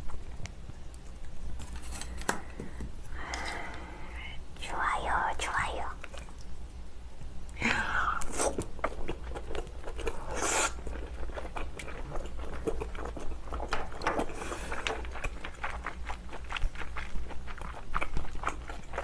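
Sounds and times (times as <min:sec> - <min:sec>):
wet chewing mouth clicks: 0:08.3 - 0:19.0.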